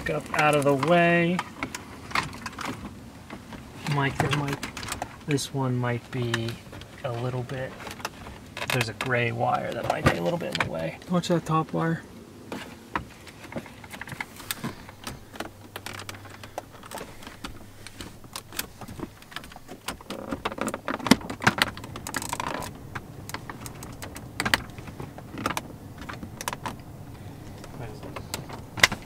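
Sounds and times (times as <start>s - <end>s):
rustling of panels and wiring: 0.0s - 29.0s.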